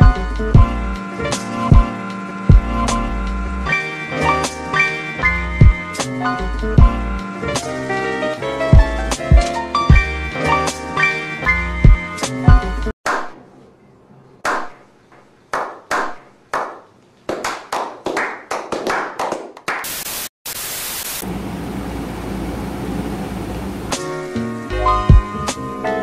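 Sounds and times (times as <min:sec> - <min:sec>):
hand claps: 0:14.4 - 0:19.9
tv static hiss: 0:19.9 - 0:24.0.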